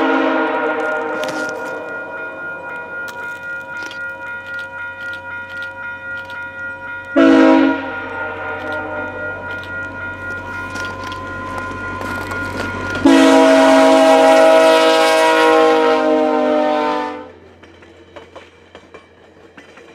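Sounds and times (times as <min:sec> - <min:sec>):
locomotive air horn: 0:00.0 - 0:01.8, 0:07.2 - 0:09.3, 0:13.0 - 0:17.4
wheels clicking over rail joints: 0:00.7 - 0:07.2, 0:17.3 - 0:19.9.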